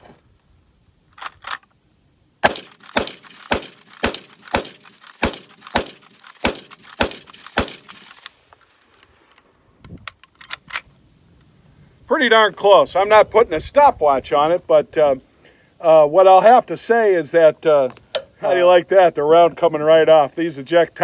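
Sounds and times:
rifle shots: 2.4s - 9.3s
rifle lever cycling: 2.4s - 10.9s.

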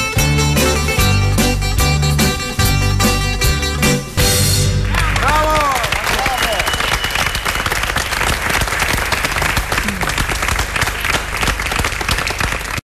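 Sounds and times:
crowd applauding: 4.7s - 12.8s.

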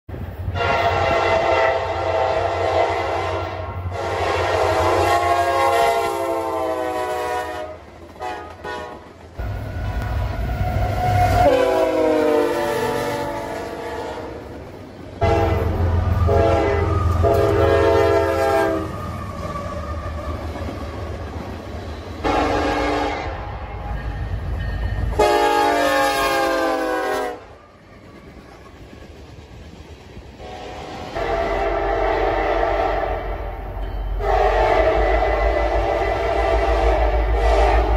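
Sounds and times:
locomotive engines rumbling: 0.1s - 37.9s
locomotive air horn blasts: 0.5s - 14.5s, 15.2s - 19.1s, 22.2s - 23.9s, 25.1s - 27.6s, 30.4s - 33.6s, 34.2s - 37.9s.

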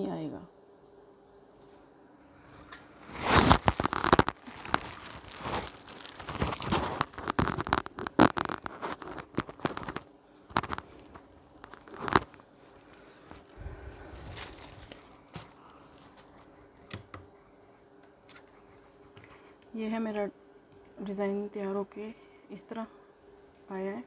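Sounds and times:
cloth rustling and crinkling: 2.8s - 16.7s.

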